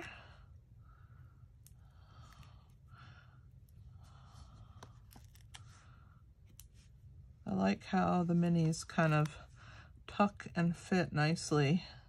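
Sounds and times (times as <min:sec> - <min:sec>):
soft breaths: 0:00.0 - 0:07.2, 0:07.9 - 0:10.2.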